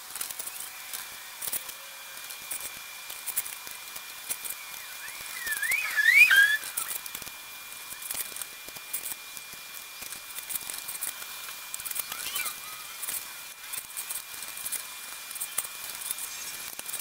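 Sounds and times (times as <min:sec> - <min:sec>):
ticking and creaking crank: 0:00.0 - 0:05.8, 0:06.4 - 0:17.0
tubing roller squealing: 0:04.9 - 0:07.0.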